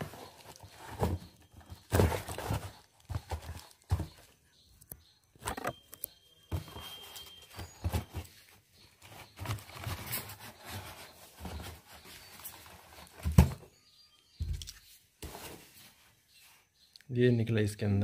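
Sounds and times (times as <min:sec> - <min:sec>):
cardboard box rustling and scraping: 0:00.0 - 0:04.2, 0:06.5 - 0:13.6.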